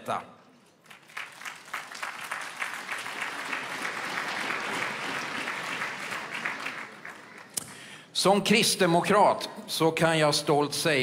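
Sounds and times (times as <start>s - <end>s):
large audience applauding: 0.8s - 7.9s.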